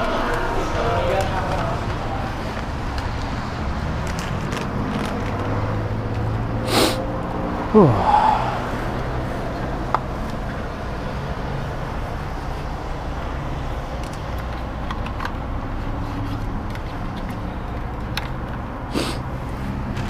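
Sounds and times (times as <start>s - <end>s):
road traffic hum: 0.0s - 20.0s.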